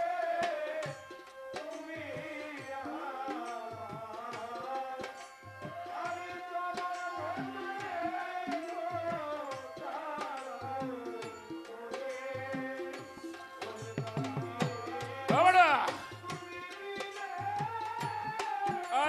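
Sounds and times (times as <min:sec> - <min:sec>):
man singing into a microphone: 0:00.0 - 0:19.0
drum beat: 0:06.8 - 0:19.0.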